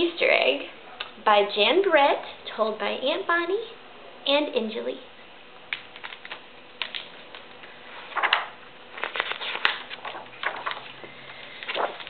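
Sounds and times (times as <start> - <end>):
book pages rustling: 5.8 - 12.0.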